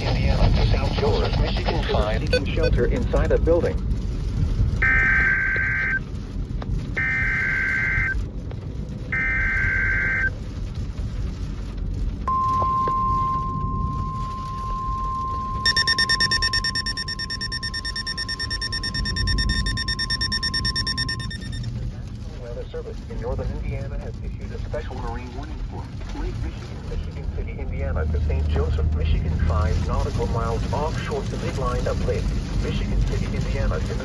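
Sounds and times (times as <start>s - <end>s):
steady warning alarm tone: 14.2s - 21.7s
screeching digital data bursts: 15.6s - 21.7s
pulsing electronic alert: 15.7s - 21.7s.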